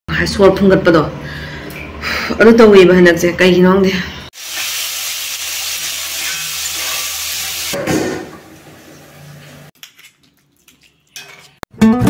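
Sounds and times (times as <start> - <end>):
sizzling hiss: 4.4 - 7.8.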